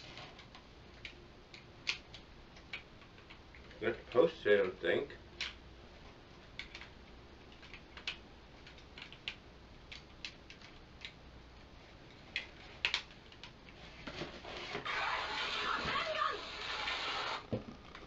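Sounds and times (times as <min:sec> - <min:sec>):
plastic toy parts clicking: 0:06.6 - 0:06.9, 0:07.5 - 0:11.2, 0:12.2 - 0:13.6.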